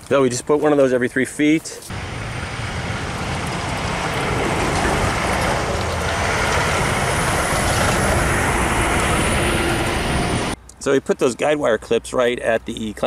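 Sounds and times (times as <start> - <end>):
flickering low rumble: 1.9 - 10.6
steady rushing noise: 1.9 - 10.6.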